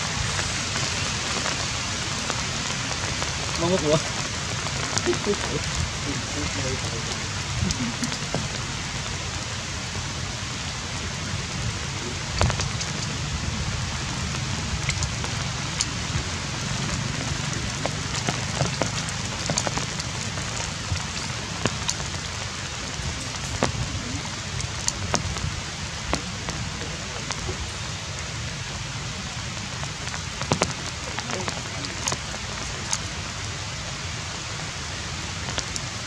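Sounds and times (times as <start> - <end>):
outdoor background hiss: 0.0 - 36.0
sharp clicks and crackles: 14.3 - 28.2, 29.6 - 33.2.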